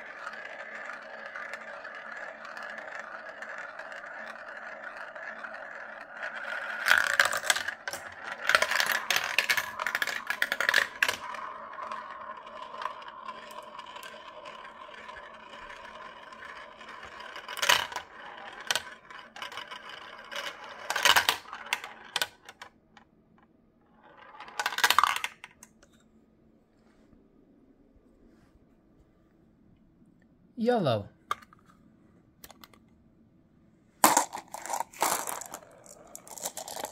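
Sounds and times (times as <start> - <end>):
marbles clacking and rattling: 0.0 - 22.7, 24.0 - 25.8, 34.0 - 36.9
marbles rolling on plastic track: 0.0 - 23.1, 23.8 - 25.9, 34.0 - 36.9.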